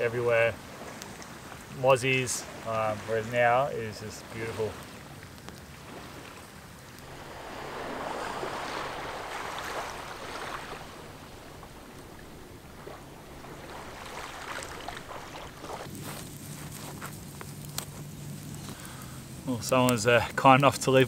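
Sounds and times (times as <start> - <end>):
small waves lapping on a shore: 0.0 - 17.6.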